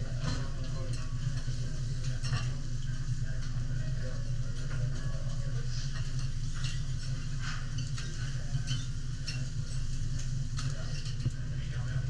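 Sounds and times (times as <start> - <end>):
steady low hum: 0.0 - 12.0
metal knife and spatula on griddle: 6.5 - 9.9.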